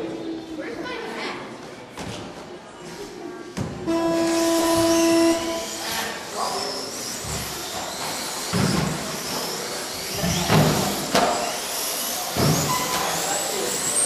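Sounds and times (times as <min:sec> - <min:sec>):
electric rc car motors whining: 0:03.9 - 0:14.0.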